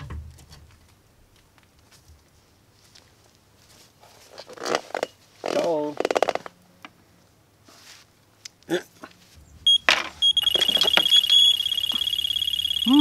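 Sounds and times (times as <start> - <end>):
fluttering electronic ringtone: 9.7 - 13.0.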